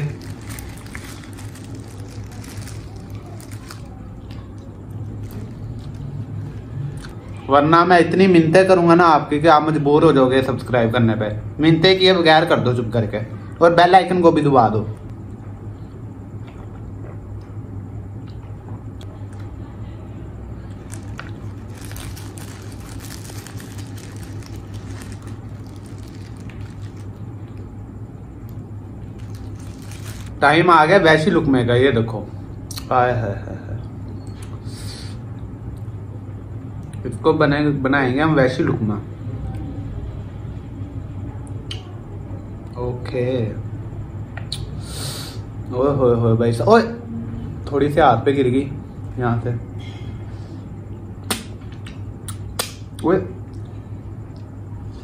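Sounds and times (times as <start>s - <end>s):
paper wrapper crinkling: 0.0s - 7.2s, 20.8s - 27.7s, 28.4s - 30.4s
steady low hum: 0.0s - 55.0s
wet mouth clicks: 44.4s - 44.7s, 51.3s - 52.8s.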